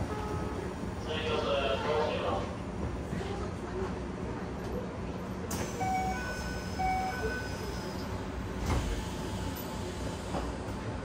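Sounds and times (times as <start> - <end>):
train car steady hum: 0.0 - 11.0
train doors thumping shut: 8.5 - 9.2.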